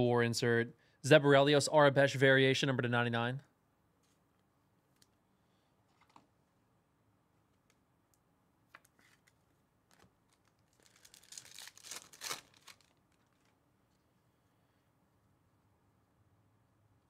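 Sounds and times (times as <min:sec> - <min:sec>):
foil wrapper tearing and crinkling: 0:09.9 - 0:13.6.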